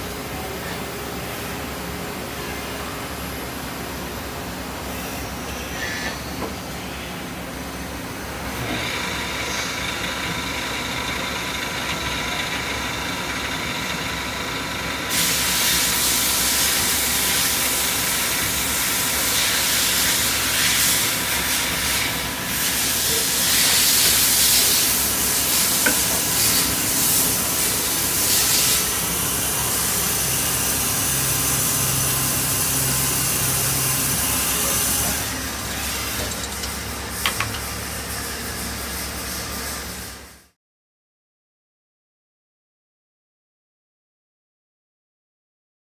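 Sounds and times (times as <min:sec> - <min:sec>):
lathe humming and whining: 0:00.0 - 0:40.3
coolant spray hissing: 0:15.1 - 0:38.8.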